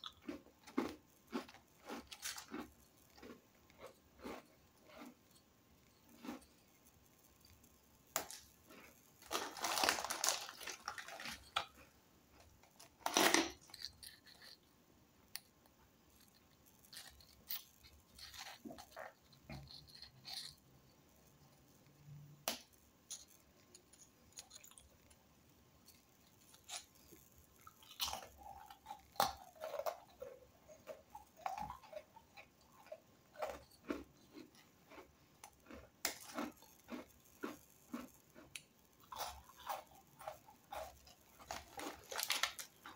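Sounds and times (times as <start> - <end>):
biscuits snapping and crumbling: 8.1 - 11.8, 12.4 - 14.5, 26.5 - 42.9
foil wrappers crackling: 9.2 - 11.7, 41.4 - 42.9.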